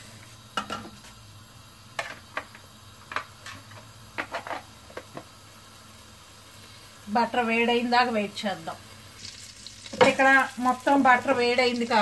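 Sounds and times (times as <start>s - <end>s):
butter spitting and popping: 9.2s - 10.2s.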